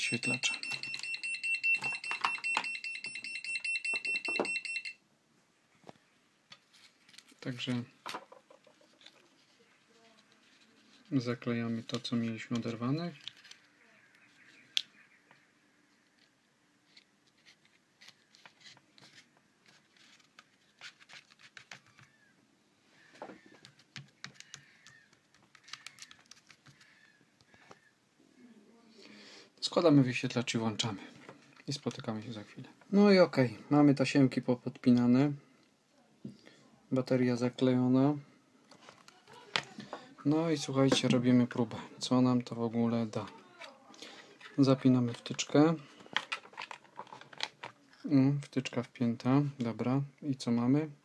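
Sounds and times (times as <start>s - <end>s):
battery charger alarm beeping: 0.0s - 5.0s
fingers clicking and tapping: 23.6s - 27.8s.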